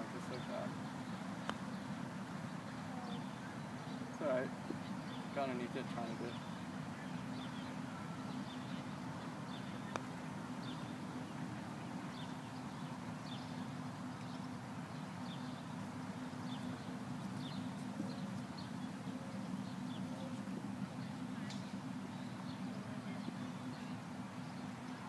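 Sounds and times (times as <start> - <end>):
putter striking golf ball: 9.9 - 10.2, 21.4 - 21.8.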